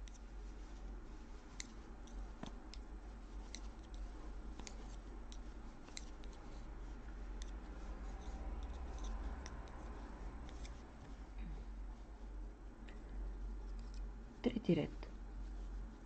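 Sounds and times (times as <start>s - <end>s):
low steady hum: 0.0s - 16.0s
knitting needles clicking: 1.5s - 6.5s, 8.2s - 10.8s.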